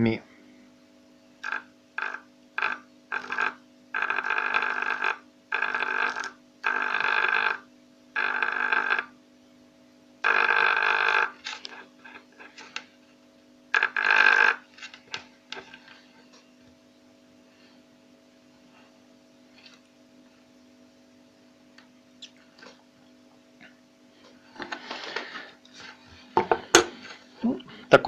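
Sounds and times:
steady low hum: 0.0s - 7.0s, 7.6s - 28.0s
electric engraving pen buzzing: 1.4s - 9.2s, 10.2s - 12.5s, 13.7s - 15.7s.

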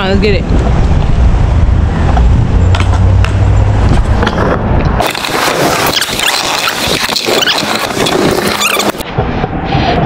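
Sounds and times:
wind on microphone: 0.0s - 10.0s
scooter wheels rolling on asphalt: 0.5s - 9.5s
wheels rattling over brick pavers: 5.0s - 9.0s.

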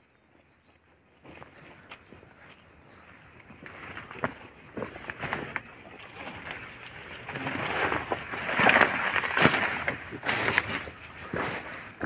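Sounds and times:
twigs and leaves crackling and rustling: 0.4s - 12.0s
stems snapping: 7.2s - 10.8s.

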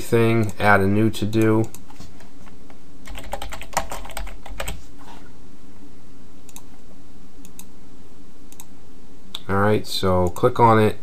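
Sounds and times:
steady low hum: 0.0s - 11.0s
computer keyboard typing: 3.0s - 4.8s.

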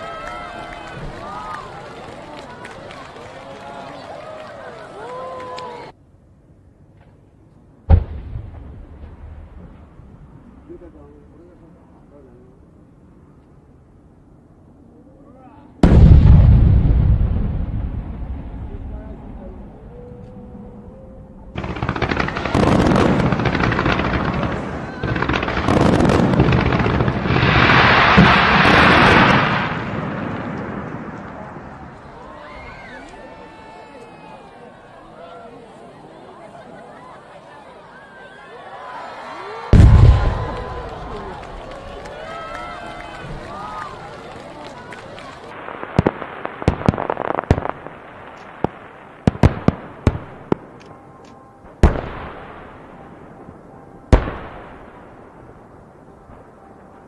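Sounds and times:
fireworks booming and popping: 7.9s - 10.2s, 15.8s - 19.8s, 21.6s - 32.2s, 39.7s - 42.2s, 43.0s - 57.0s.

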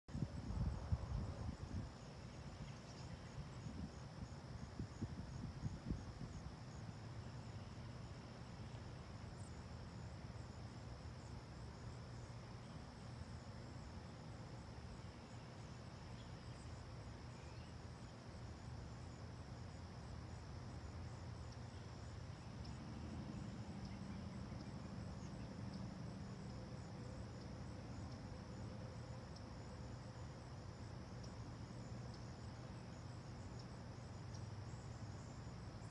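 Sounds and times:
insect chorus trilling: 0.1s - 35.9s
low steady rumble: 20.2s - 35.9s.

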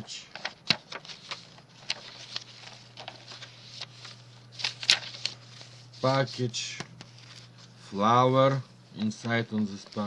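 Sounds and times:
paper rustling: 0.3s - 8.2s, 9.0s - 10.0s.

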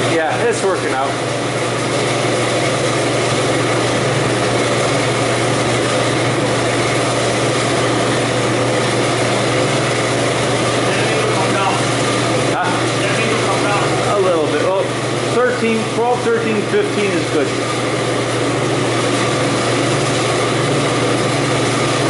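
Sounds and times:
fans rushing air: 0.0s - 22.0s
low motor hum: 0.0s - 22.0s.

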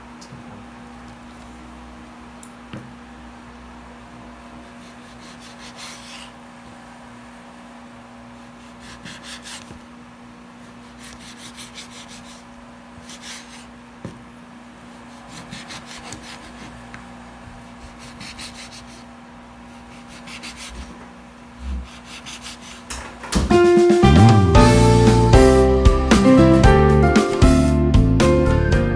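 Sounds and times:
steady low hum: 0.0s - 28.9s
knife sawing through meat: 4.7s - 6.4s, 8.5s - 9.7s, 10.8s - 13.7s, 15.1s - 16.8s, 17.8s - 19.1s, 19.7s - 20.8s, 21.8s - 22.8s
knife scraping cutting board: 4.8s - 6.4s, 8.6s - 9.8s, 15.1s - 16.8s, 19.8s - 21.0s, 21.6s - 22.9s.

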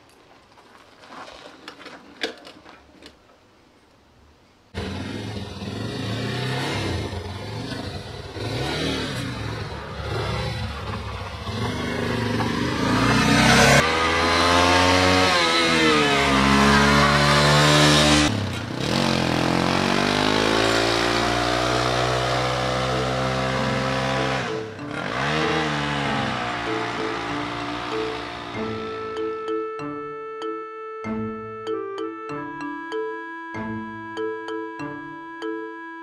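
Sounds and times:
motorcycle engine accelerating: 4.8s - 29.4s.

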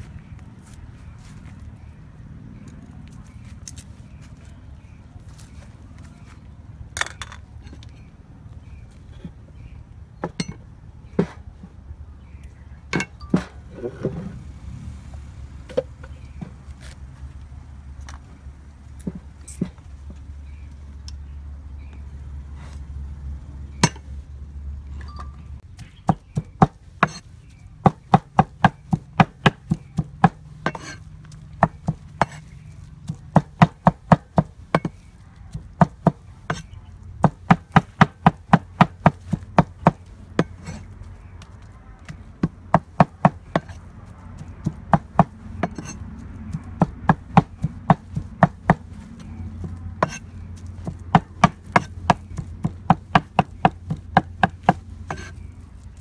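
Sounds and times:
cleaver chopping on wooden board: 25.8s - 27.2s, 27.8s - 31.0s, 31.6s - 35.1s, 35.8s - 40.9s, 42.1s - 43.8s, 44.4s - 50.2s, 50.8s - 55.4s.

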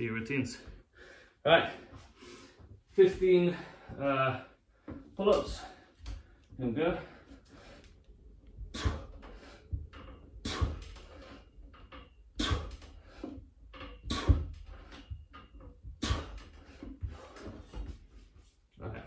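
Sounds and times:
man breathing hard: 0.8s - 2.7s, 3.5s - 11.6s, 12.4s - 15.2s
low thuds: 8.4s - 18.2s.

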